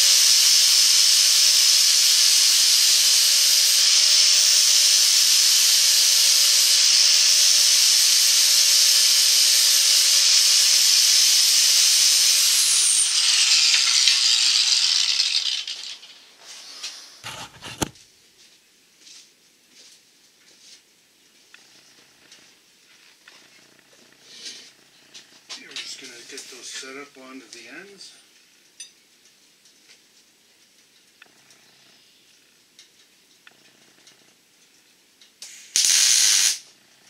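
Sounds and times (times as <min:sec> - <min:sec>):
angle grinder whining: 0:00.0 - 0:17.9
grinder spinning down: 0:00.0 - 0:18.0.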